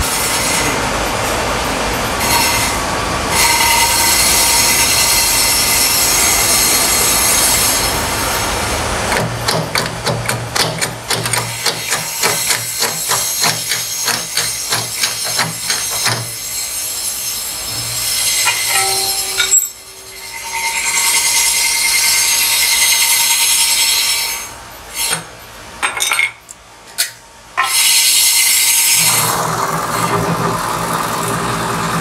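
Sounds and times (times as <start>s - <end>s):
powered hammer knocking on metal rim: 9.1s - 16.4s.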